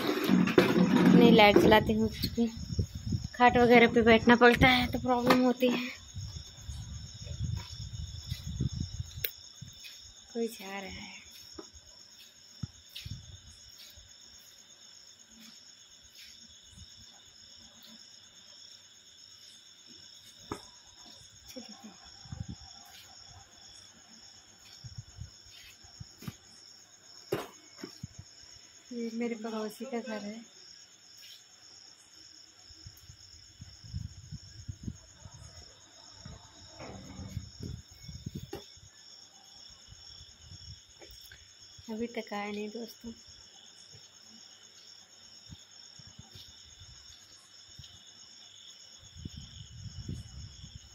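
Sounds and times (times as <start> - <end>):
crickets trilling: 0.0 - 50.9.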